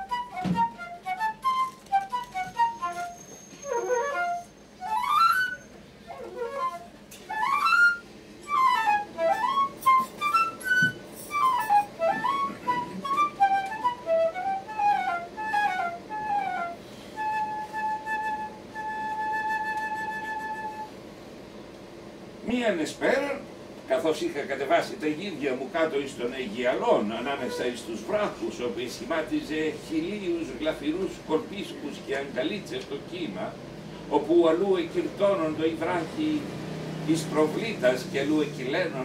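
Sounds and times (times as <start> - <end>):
flute melody: 0.0 - 21.0.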